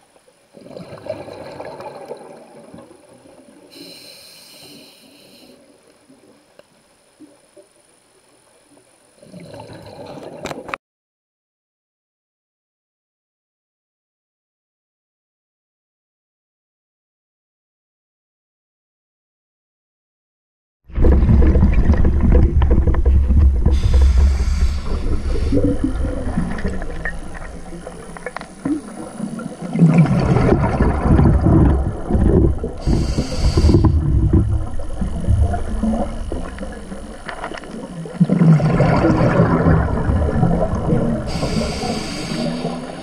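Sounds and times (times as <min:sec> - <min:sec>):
gurgling exhaled bubbles: 0:00.5 - 0:03.7, 0:09.2 - 0:10.7, 0:20.9 - 0:43.0
regulator inhalation hiss: 0:03.7 - 0:05.8, 0:23.7 - 0:26.8, 0:32.7 - 0:34.1, 0:41.2 - 0:43.0
low underwater rumble: 0:20.9 - 0:43.0.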